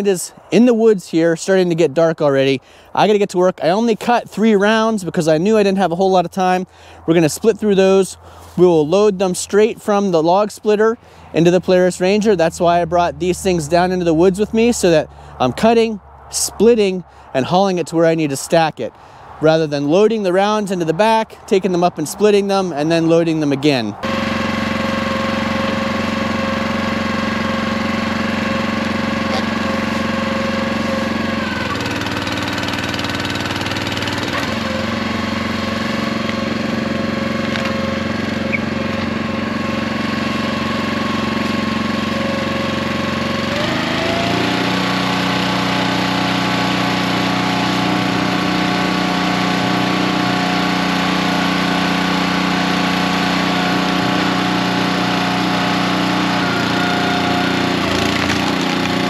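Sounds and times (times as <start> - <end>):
small gas engine running: 24.0 - 59.0.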